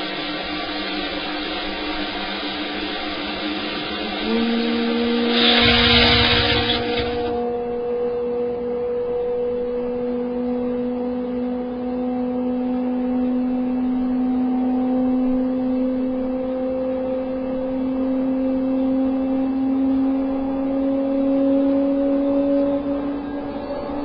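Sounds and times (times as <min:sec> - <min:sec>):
turboprop engine droning: 0:00.0 - 0:24.0
loud rushing noise: 0:01.8 - 0:07.4.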